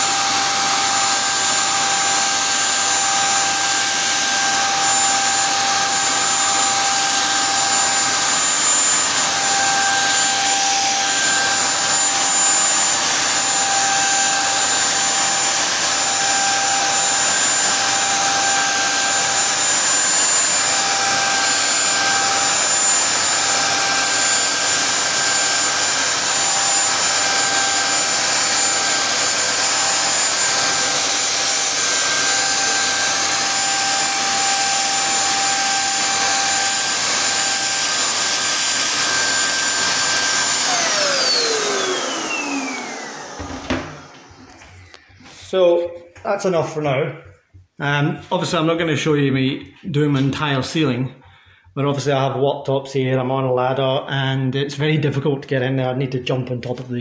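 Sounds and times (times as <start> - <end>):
paint spray gun motor whine: 0.0 - 45.4.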